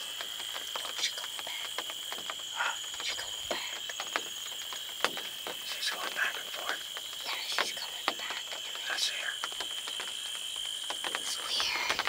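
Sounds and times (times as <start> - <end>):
faint clicks: 0.0 - 12.0
insect chorus trilling: 0.0 - 12.0.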